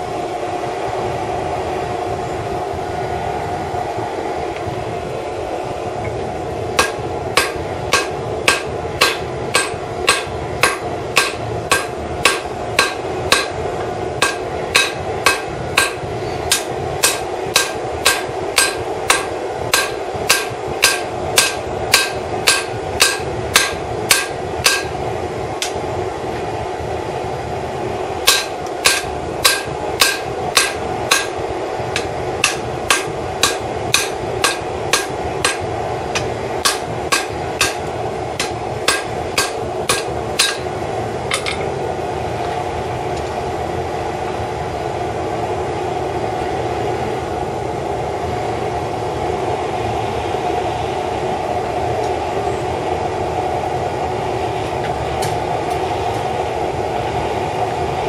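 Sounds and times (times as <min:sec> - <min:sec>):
forge burner roaring: 0:00.0 - 0:58.0
hammer ringing on anvil: 0:06.8 - 0:13.6, 0:14.2 - 0:24.9, 0:28.2 - 0:31.4, 0:32.0 - 0:35.6, 0:36.2 - 0:40.7.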